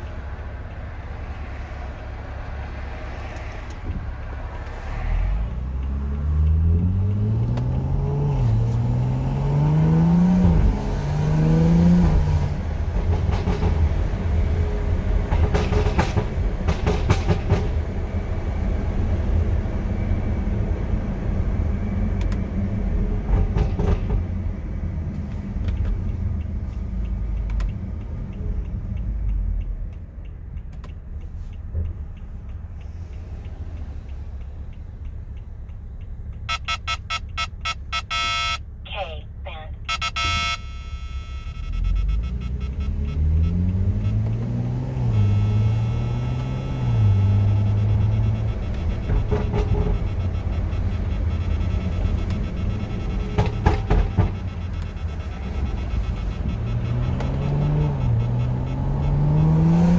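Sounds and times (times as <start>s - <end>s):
car engine revving: 0.0s - 17.2s, 39.8s - 59.9s
electronic beeps: 36.5s - 59.9s
exhaust crackles and pops: 45.3s - 59.4s.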